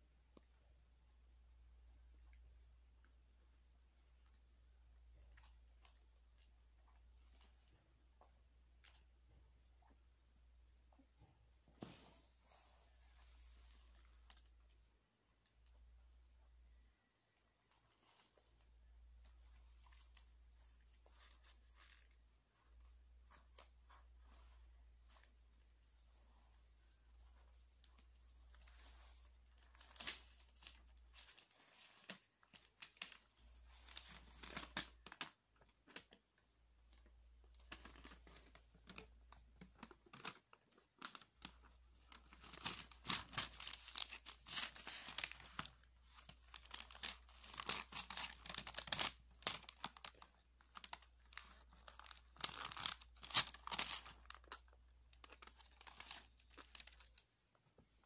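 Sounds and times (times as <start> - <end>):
paper crinkling and tearing: 28.6 - 36.1, 37.6 - 57.3.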